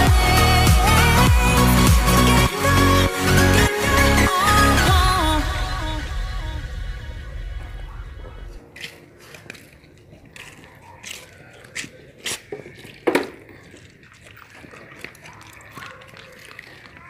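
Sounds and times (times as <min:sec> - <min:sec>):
dogs eating: 0:08.6 - 0:17.0.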